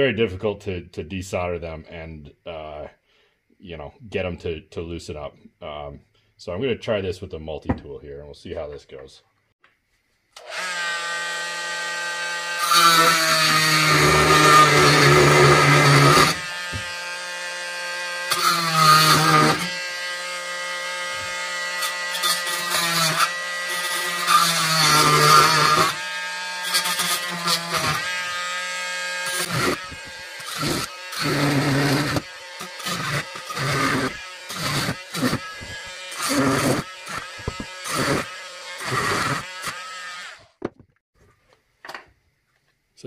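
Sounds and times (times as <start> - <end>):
oscillating multi-tool cutting metal: 10.4 - 40.6.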